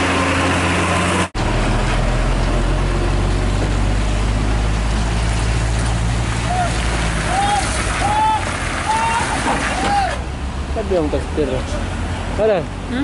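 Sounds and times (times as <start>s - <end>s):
diesel truck engine under load: 0.0s - 13.0s.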